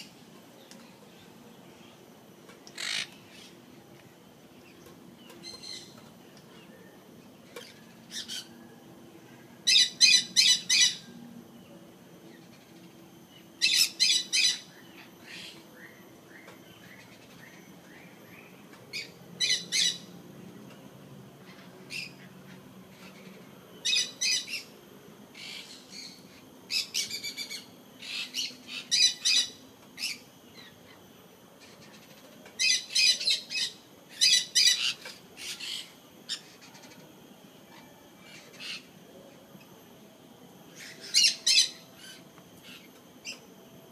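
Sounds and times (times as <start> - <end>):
parrots squawking: 2.8 - 3.5, 9.7 - 11.0, 32.6 - 37.0, 40.8 - 42.9.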